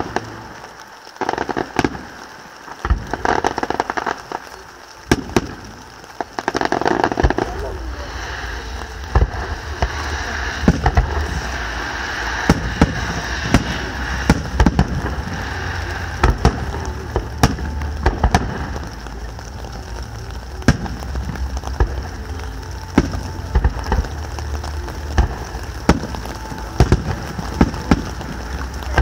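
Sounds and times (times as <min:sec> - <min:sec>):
fireworks bursting: 0:00.0 - 0:29.0
steady hiss: 0:00.0 - 0:29.0.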